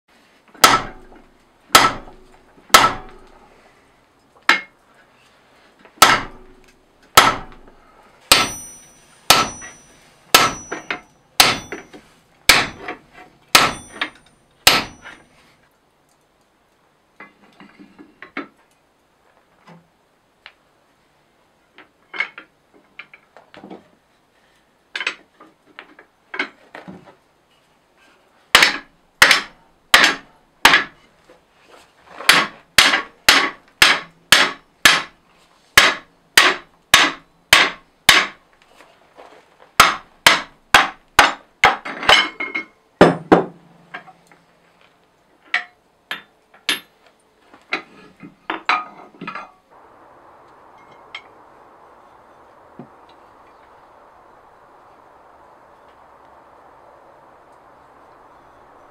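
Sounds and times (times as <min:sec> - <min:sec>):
hammer striking steel: 0:00.6 - 0:03.3, 0:06.0 - 0:07.7, 0:08.3 - 0:15.2
light metal clinks: 0:08.4 - 0:12.0.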